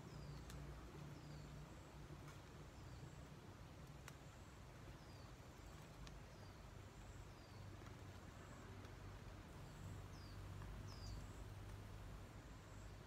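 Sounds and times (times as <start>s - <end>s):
faint bird chirps: 0.0s - 3.4s, 4.1s - 8.6s, 9.6s - 11.5s
low steady hum: 0.0s - 13.0s.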